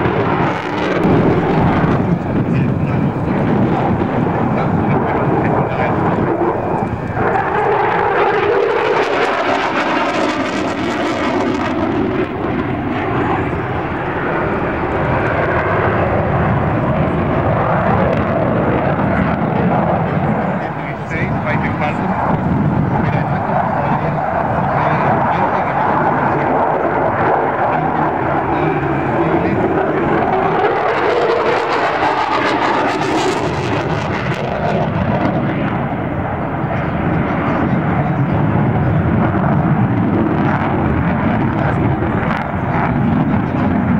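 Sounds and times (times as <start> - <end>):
jet engine flying overhead: 0.0 - 43.9.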